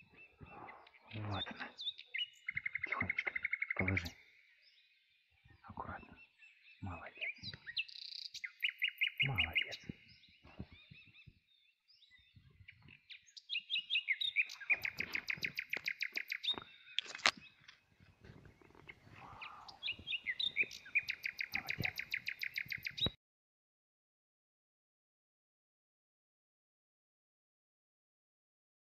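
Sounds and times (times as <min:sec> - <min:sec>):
songbird trilling: 0:00.2 - 0:04.8, 0:05.7 - 0:17.7, 0:18.6 - 0:23.1.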